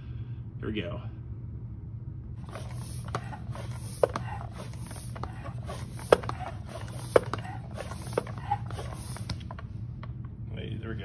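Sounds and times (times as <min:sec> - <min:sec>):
floor pump pumping: 0:02.4 - 0:10.2.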